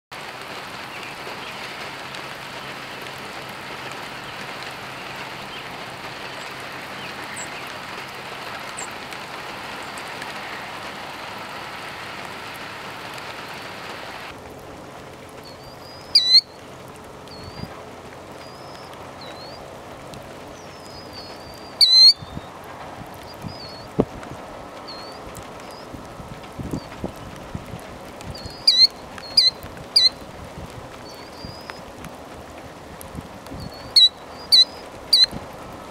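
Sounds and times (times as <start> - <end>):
light rain hissing: 0.1 - 35.9
killdeer calls: 4.3 - 9.0, 15.4 - 16.6, 17.3 - 17.7, 18.4 - 19.6, 20.6 - 22.5, 23.2 - 23.9, 28.3 - 30.3, 31.0 - 31.9, 33.6 - 35.4.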